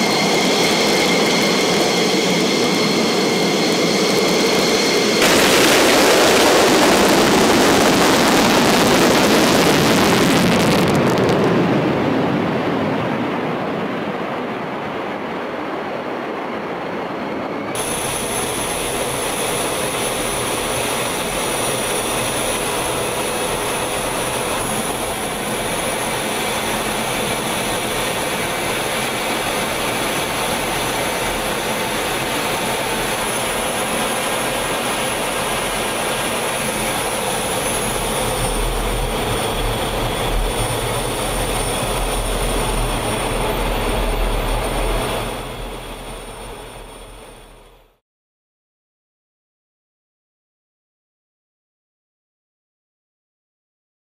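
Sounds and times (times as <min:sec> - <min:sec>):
thin high whine: 0:00.0 - 0:10.8, 0:17.4 - 0:48.0
jet engine and wind rush: 0:00.0 - 0:48.0
jet taking off roar: 0:00.0 - 0:48.0.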